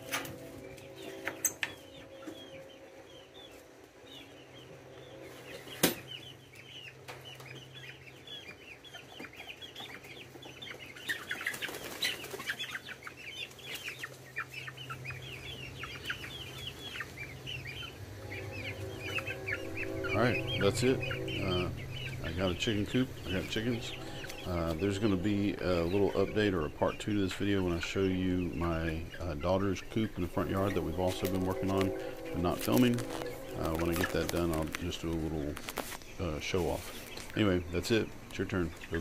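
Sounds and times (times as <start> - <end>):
chickens chirping: 0.0 - 39.0
wings flapping: 11.0 - 14.2, 28.8 - 37.4.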